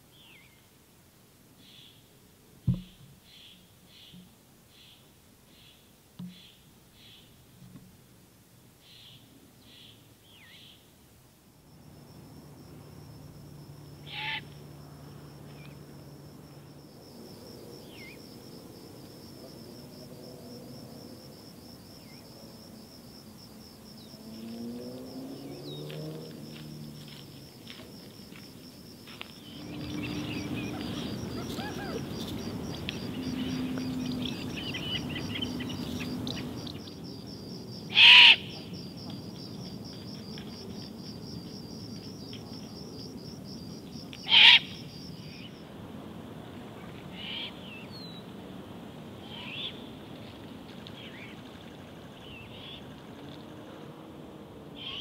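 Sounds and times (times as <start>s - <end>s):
faint calls: 14.0s - 14.8s, 29.4s - 39.2s, 44.1s - 45.6s, 47.1s - 47.9s, 54.8s - 55.0s.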